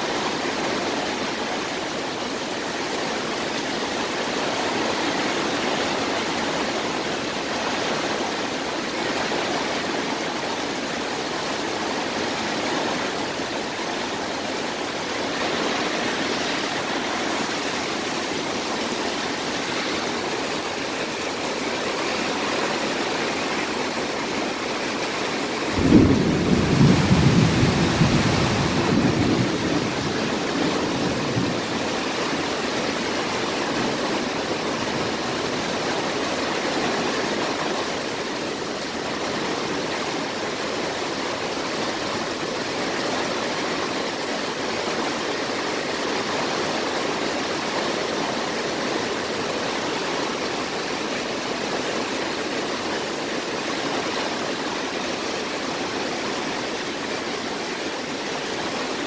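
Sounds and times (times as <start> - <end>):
heavy rain falling: 0.0 - 59.0
thunder clap rumbling: 25.6 - 32.1.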